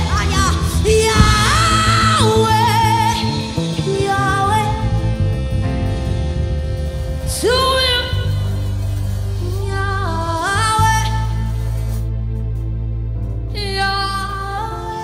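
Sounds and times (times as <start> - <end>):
woman singing with vibrato: 0.8 - 3.3
sustained instrumental backing: 1.0 - 3.9.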